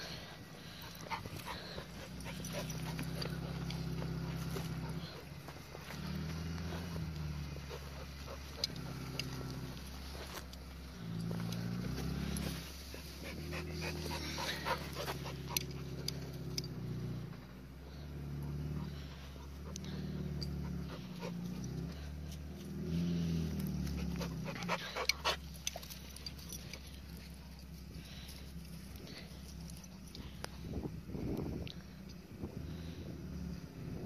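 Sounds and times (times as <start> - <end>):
engine revving in surges: 0.0 - 34.0.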